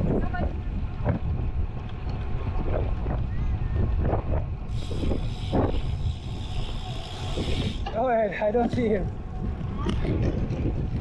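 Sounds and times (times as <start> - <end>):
wind buffeting microphone: 0.0 - 11.0
bike freewheel buzzing: 0.9 - 8.5.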